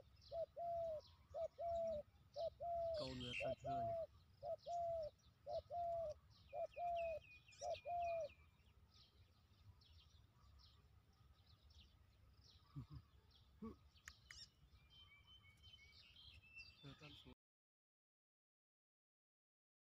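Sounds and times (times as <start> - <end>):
small birds chirping: 0.0 - 17.4
dove cooing: 0.2 - 8.4.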